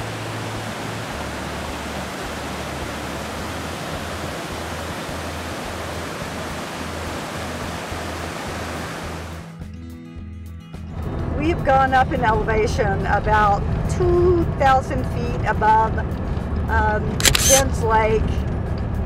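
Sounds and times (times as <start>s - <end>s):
waterfall rushing: 0.0s - 9.5s.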